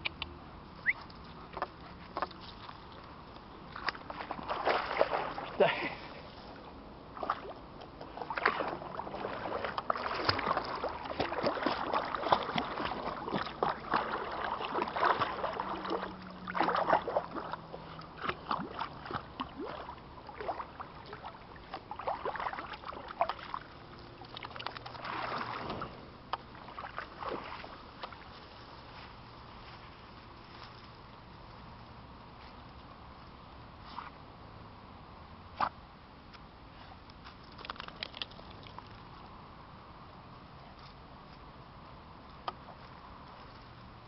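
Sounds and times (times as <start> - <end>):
dog splashing in water: 3.8 - 5.6, 8.2 - 25.9, 26.5 - 28.3.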